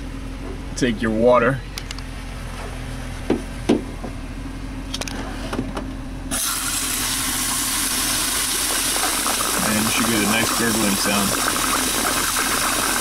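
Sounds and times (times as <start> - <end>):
low steady hum: 0.0 - 13.0
water gurgling down drain: 6.8 - 13.0.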